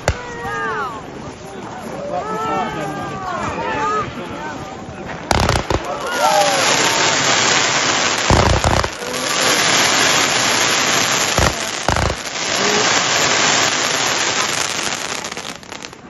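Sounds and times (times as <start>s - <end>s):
fireworks bangs: 0.0s - 0.9s, 5.0s - 16.0s
fireworks crackling: 0.0s - 2.0s, 4.8s - 16.0s.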